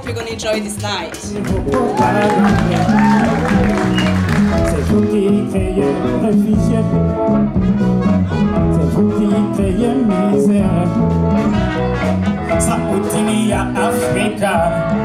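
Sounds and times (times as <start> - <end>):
conga drums: 0.0 - 6.9
live band playing: 0.0 - 15.0
electric guitar: 1.2 - 15.0
person singing: 1.3 - 7.2, 8.1 - 15.0
trumpet: 7.3 - 10.6, 11.3 - 14.2.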